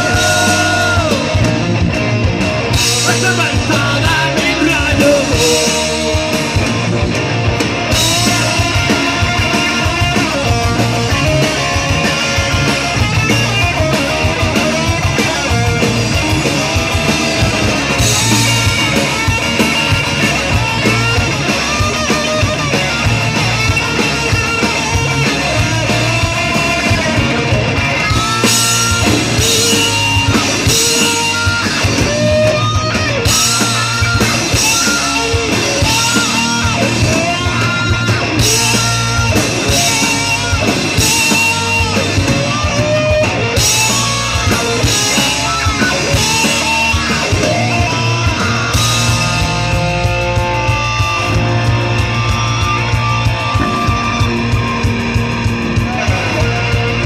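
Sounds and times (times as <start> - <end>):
person singing lead vocal: 0.0 - 1.5, 3.0 - 6.4
drum kit: 0.0 - 57.0
electric guitars: 0.0 - 57.0.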